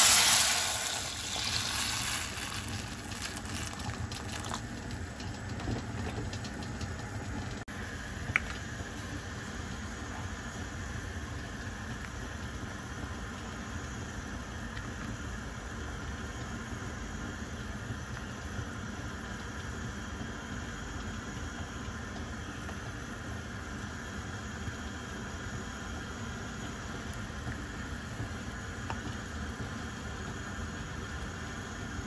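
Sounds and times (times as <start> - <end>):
water hissing in hot pot: 0.0 - 4.8
pot boiling and bubbling: 0.0 - 32.0.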